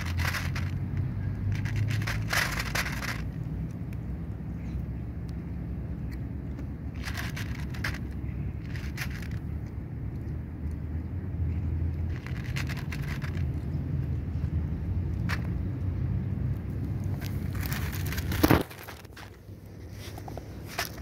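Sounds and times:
cat crunching dry kibble: 0.0 - 3.8, 6.1 - 9.8, 11.9 - 13.6, 16.6 - 21.0.

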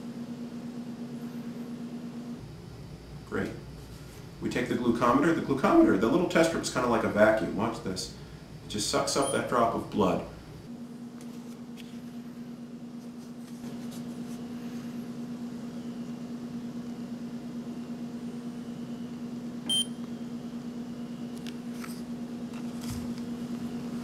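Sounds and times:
steady low hum: 0.0 - 24.0
glucose meter beep: 19.7 - 20.0.

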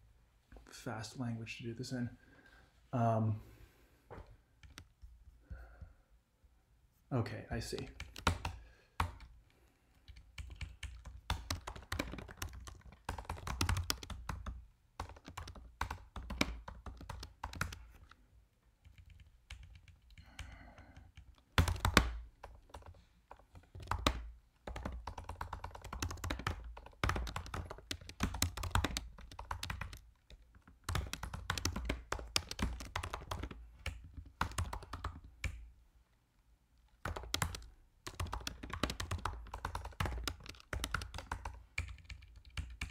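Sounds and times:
fast keyboard typing: 4.6 - 4.9, 7.6 - 9.3, 10.1 - 18.2, 18.8 - 35.6, 37.0 - 42.9.

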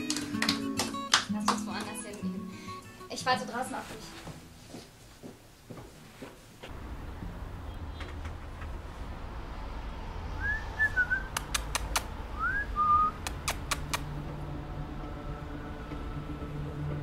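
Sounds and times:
person whistling: 10.4 - 11.5, 12.4 - 13.3
sharp clicks: 11.3 - 12.1, 13.2 - 14.1.

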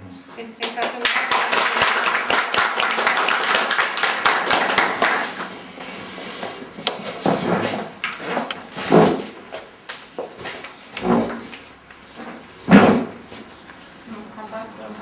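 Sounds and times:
people applauding: 0.6 - 5.8.

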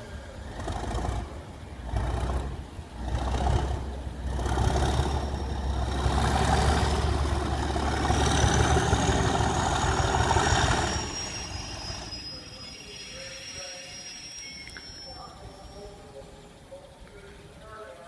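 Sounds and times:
diesel locomotive engine powering up: 0.0 - 17.7
thin high whistle: 9.7 - 16.6.

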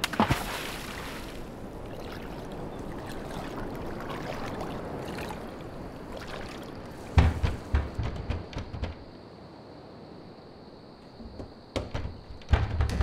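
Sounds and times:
flowing water: 0.0 - 7.6.

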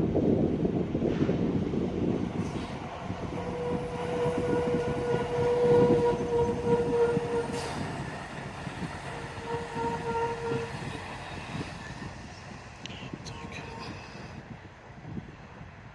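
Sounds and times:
truck engine and tyres rumble: 0.0 - 15.9
truck air horn blasts: 3.3 - 8.0, 9.1 - 11.7.

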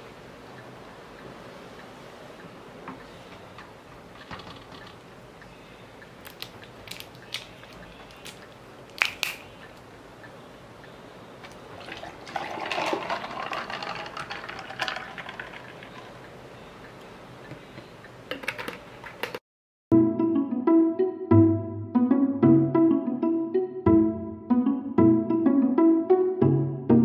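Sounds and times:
coffee pouring into plastic cup: 11.8 - 16.1.

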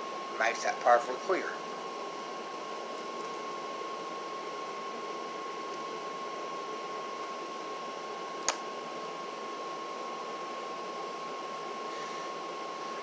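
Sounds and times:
sharp click: 8.4 - 8.6.

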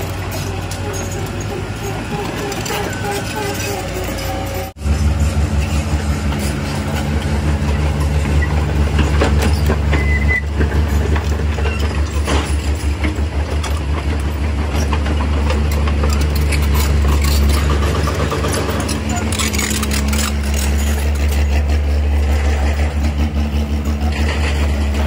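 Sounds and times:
excavator diesel engine droning: 0.0 - 25.0
knocks and clanks: 0.0 - 25.0.

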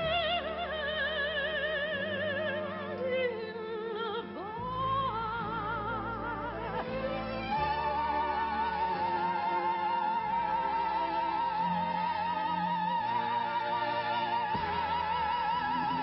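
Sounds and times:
operatic soprano singing: 0.0 - 16.0
orchestral accompaniment: 6.0 - 16.0.

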